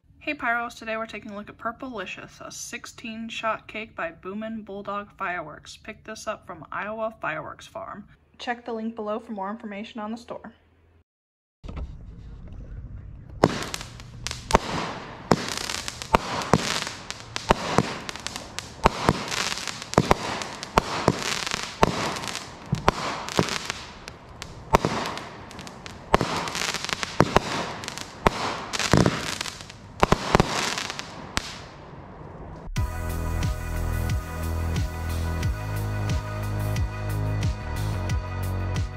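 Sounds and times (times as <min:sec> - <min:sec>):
crackling of bursting stars: 0:13.3 - 0:35.5
firework shots thumping: 0:13.4 - 0:31.9.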